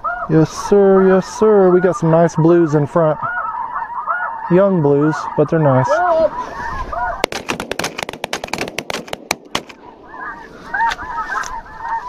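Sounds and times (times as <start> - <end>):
geese calling: 0.0 - 12.0
rapid shotgun blasts: 7.2 - 10.1.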